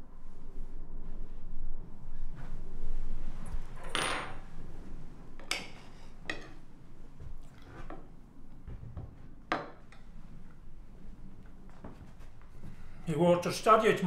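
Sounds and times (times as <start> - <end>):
noisy rustle: 0.0 - 6.2.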